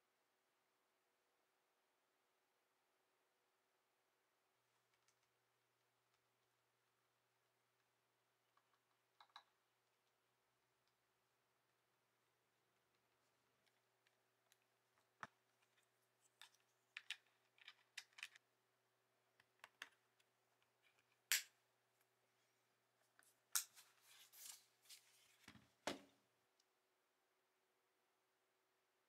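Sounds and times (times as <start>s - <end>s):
small plastic clicks and taps: 8.5s - 9.6s, 19.4s - 21.5s.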